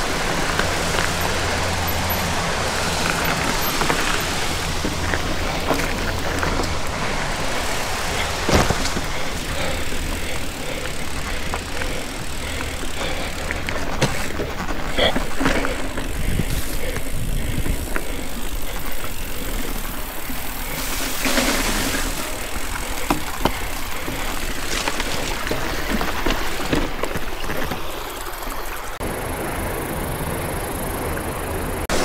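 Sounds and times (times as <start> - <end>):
bike tyres rolling on dirt: 0.0 - 32.0.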